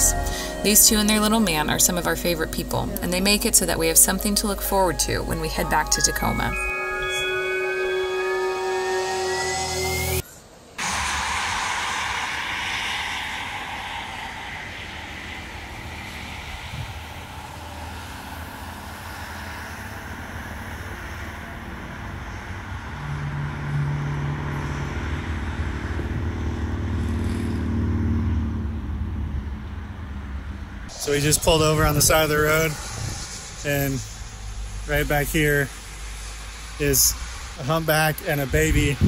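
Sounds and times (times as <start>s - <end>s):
low engine rumble: 0.0s - 10.2s, 10.8s - 39.0s
vehicle tyre noise: 10.8s - 39.0s.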